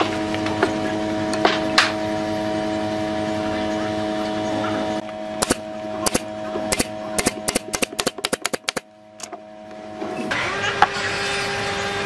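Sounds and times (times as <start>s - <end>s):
nail gun shots: 5.4s - 8.8s.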